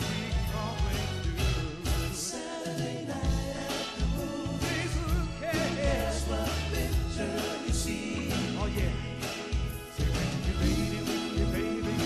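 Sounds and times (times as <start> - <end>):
man singing: 0.0 - 12.0
soul music with bass and drums: 0.0 - 12.0.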